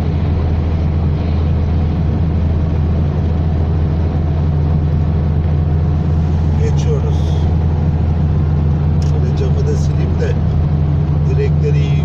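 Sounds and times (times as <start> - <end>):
car engine drone: 0.0 - 12.0
tyres hissing on road: 5.8 - 11.0.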